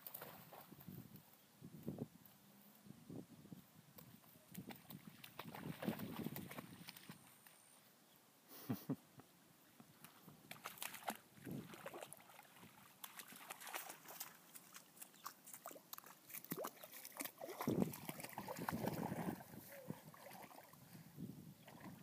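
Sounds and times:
dog splashing in water: 4.5 - 7.3, 10.5 - 20.8.

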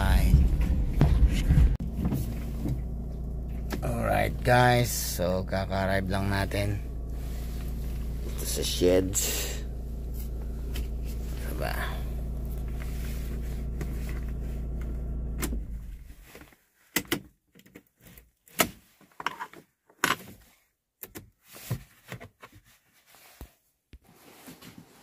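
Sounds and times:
vehicle engine idling: 0.0 - 16.3.

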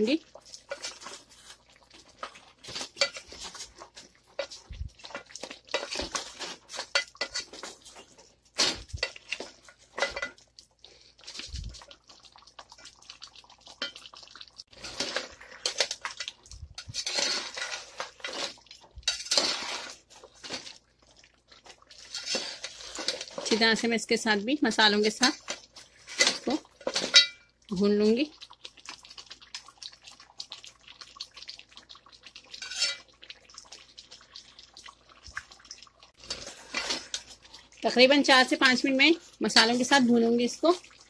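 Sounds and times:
spoon scraping a cooking pot: 0.5 - 10.4, 14.7 - 20.8, 21.9 - 23.8, 32.5 - 33.1, 36.2 - 37.4.

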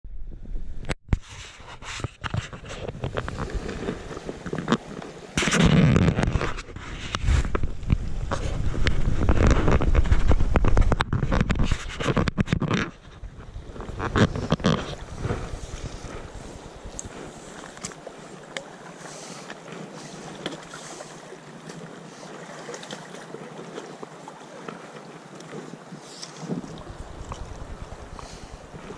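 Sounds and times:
creek water rippling: 2.2 - 28.9
small splashes and ticks: 16.9 - 28.9.

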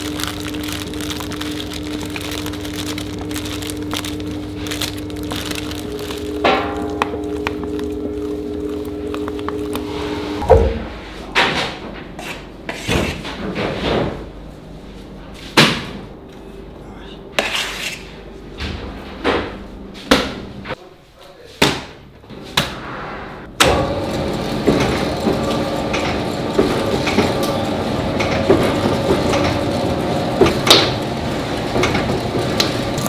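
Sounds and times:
dough mixer motor humming: 0.0 - 10.4, 23.6 - 33.0.

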